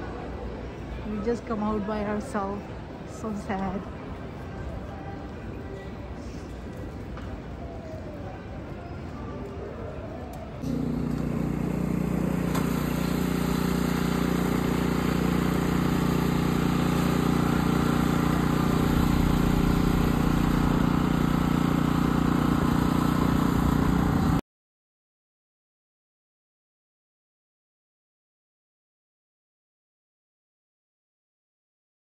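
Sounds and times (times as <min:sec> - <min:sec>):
snowblower engine running: 0:10.6 - 0:24.4.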